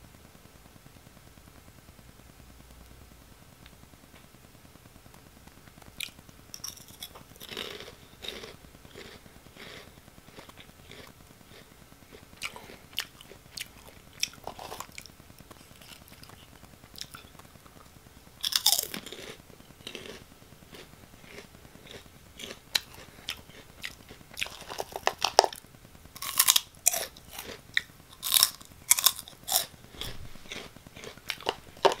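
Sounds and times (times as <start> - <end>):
snacks crunching while chewed: 6.0 - 25.6, 26.2 - 32.0.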